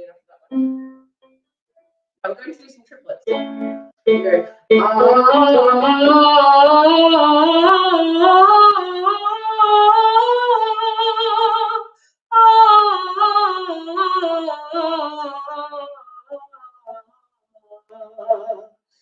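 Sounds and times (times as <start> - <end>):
woman singing vocal warm-up: 4.1 - 18.8.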